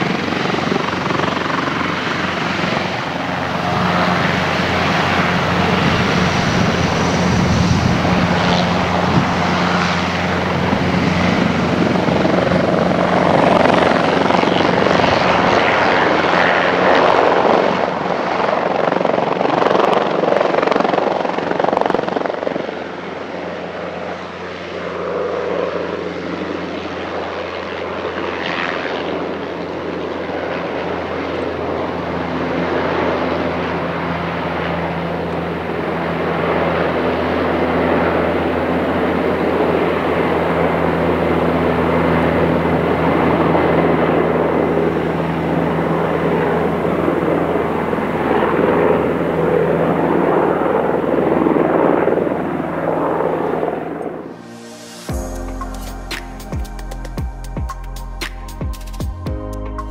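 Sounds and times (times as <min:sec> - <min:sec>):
helicopter rotor and turbine: 0:00.0 - 0:59.9.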